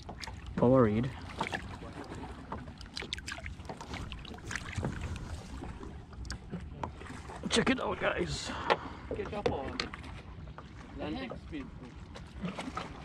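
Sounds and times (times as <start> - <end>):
water lapping against boat: 0.0 - 13.0.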